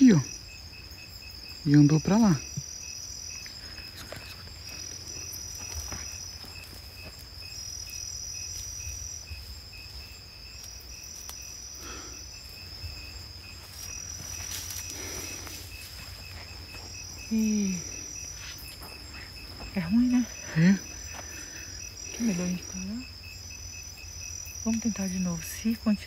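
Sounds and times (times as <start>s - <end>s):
faint pulsing insect chirp: 0.0s - 26.0s
insect trill: 0.0s - 26.0s
insects shrilling: 0.0s - 26.0s
faint rustles: 3.4s - 22.8s.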